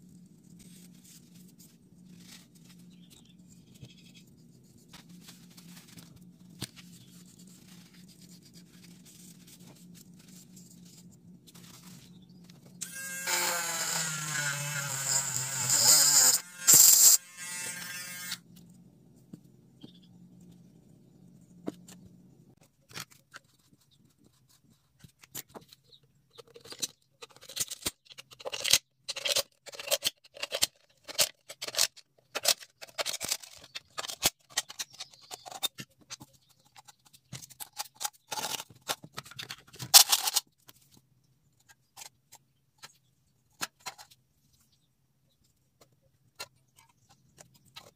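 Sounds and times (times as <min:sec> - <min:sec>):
blade scraping and cutting can: 0:12.8 - 0:18.4
rotary tool grinding metal can: 0:12.8 - 0:18.4
rotary tool whining: 0:12.8 - 0:18.4.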